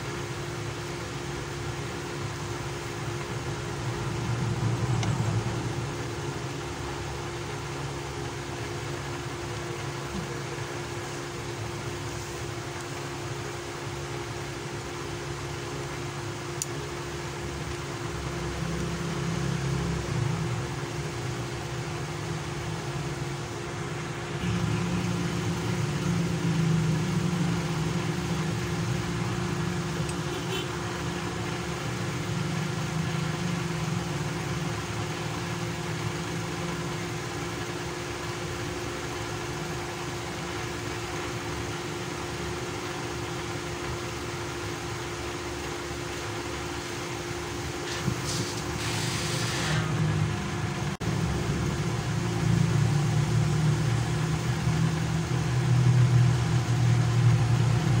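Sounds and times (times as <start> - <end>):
low mechanical drone: 0.0 - 58.0
brief hiss: 47.8 - 50.0.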